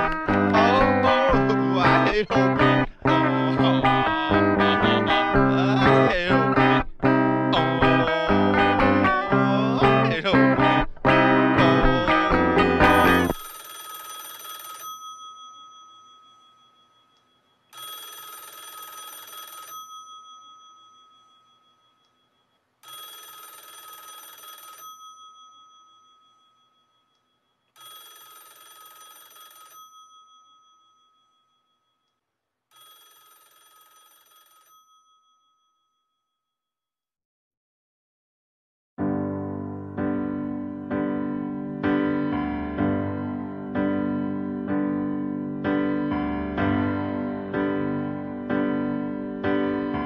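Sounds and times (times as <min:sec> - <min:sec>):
telephone ringing: 0:00.0 - 0:31.7, 0:32.7 - 0:35.6.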